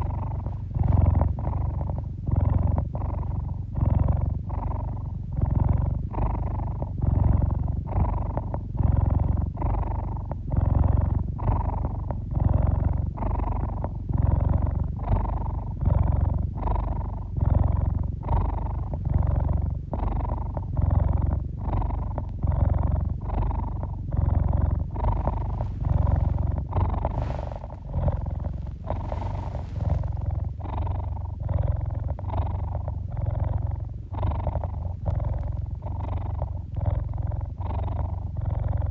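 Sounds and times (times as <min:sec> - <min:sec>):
soft rustles: 0:00.0 - 0:03.2, 0:24.3 - 0:36.4
cat purring: 0:00.0 - 0:38.9.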